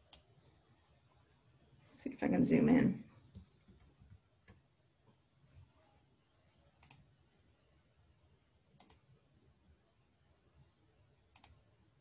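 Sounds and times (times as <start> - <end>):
computer mouse clicks: 0.0 - 0.6, 6.8 - 7.1, 8.8 - 9.1, 11.3 - 11.6.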